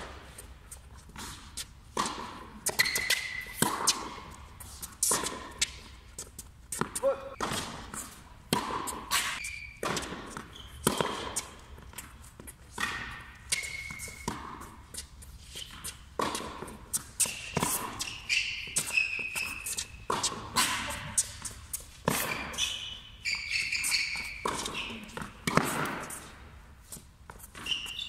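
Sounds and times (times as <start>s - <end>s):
racket hitting tennis ball: 0.0s - 28.0s
shoes squeaking on court: 0.0s - 28.0s
ball bouncing: 1.6s - 4.4s, 5.0s - 15.1s, 15.7s - 22.7s, 23.8s - 26.2s.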